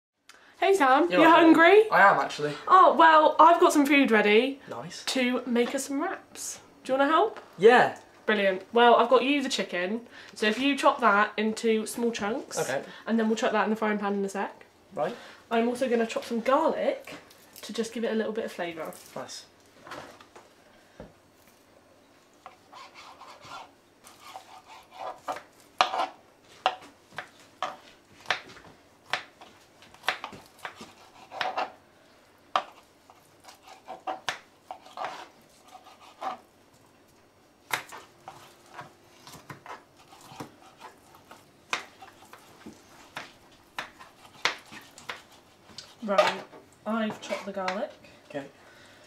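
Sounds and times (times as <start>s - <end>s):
knife rubbing on a board: 22.5s - 26.2s, 32.6s - 36.4s
knife chopping on a board: 22.8s - 31.7s, 37.7s - 46.5s.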